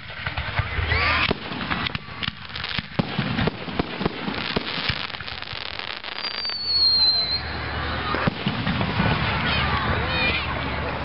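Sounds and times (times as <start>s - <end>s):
fireworks banging and crackling: 0.0s - 11.0s
firework whistle: 0.8s - 9.1s.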